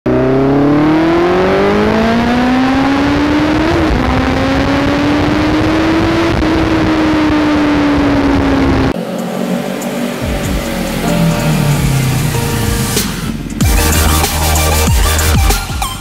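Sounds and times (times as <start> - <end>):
motorcycle engine accelerating: 0.1 - 14.2.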